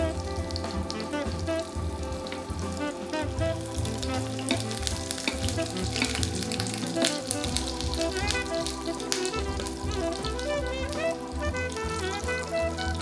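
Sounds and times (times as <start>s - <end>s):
food sizzling in a frying pan: 0.0s - 13.0s
soft background music: 0.0s - 13.0s
spoon basting: 3.2s - 10.8s.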